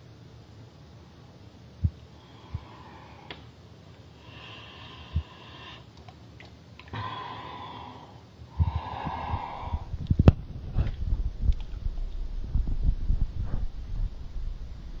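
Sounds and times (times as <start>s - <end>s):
breathing through snorkel: 4.2s - 5.9s, 6.9s - 9.9s
low bumps: 9.7s - 15.0s.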